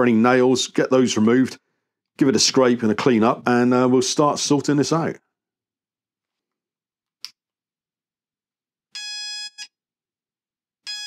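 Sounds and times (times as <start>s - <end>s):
metal detector beeping: 9.0s - 9.7s.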